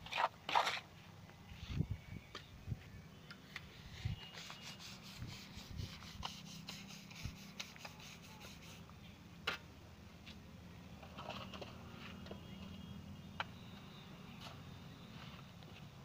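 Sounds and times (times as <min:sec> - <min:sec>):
trowel scraping wet mortar: 0:00.0 - 0:00.9.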